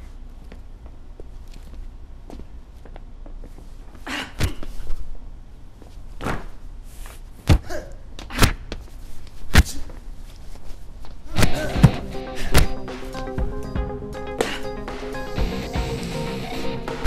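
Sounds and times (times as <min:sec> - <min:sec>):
punch and kick impacts: 0:07.4 - 0:07.8, 0:11.3 - 0:13.8.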